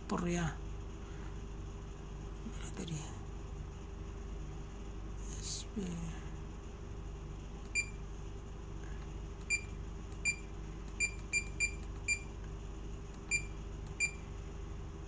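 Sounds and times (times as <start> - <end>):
short high key-press beeps: 7.7 - 8.0, 9.4 - 12.3, 13.3 - 14.2.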